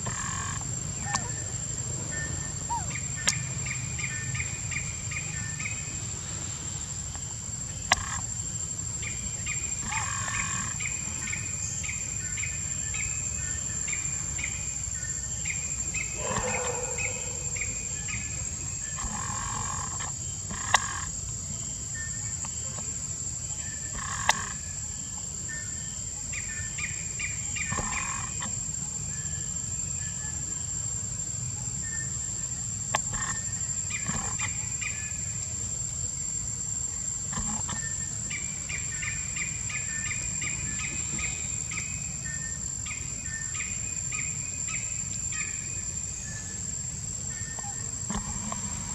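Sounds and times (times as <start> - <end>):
high insect whine: 0.0 - 48.9.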